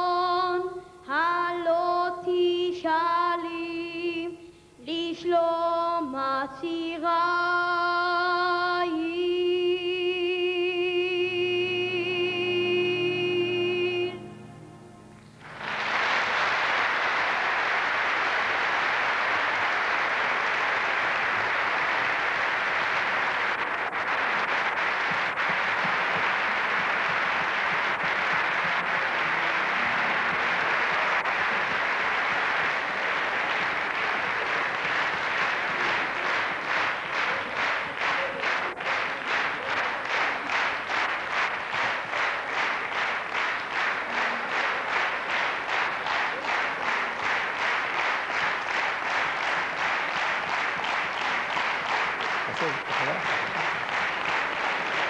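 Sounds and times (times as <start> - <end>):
audience applauding: 14.2 - 55.0
rhythmic clapping in unison: 14.2 - 55.0.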